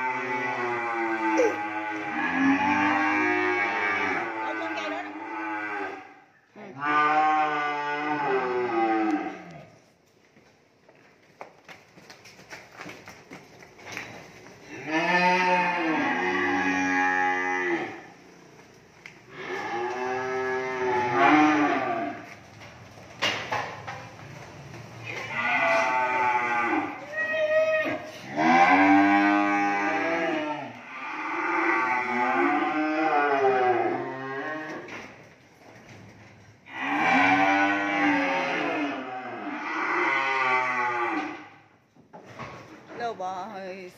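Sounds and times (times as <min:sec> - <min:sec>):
cattle mooing: 0:00.0 - 0:06.1, 0:06.7 - 0:09.7, 0:14.7 - 0:18.2, 0:19.3 - 0:22.3, 0:25.1 - 0:27.1, 0:27.7 - 0:34.9, 0:36.7 - 0:41.5.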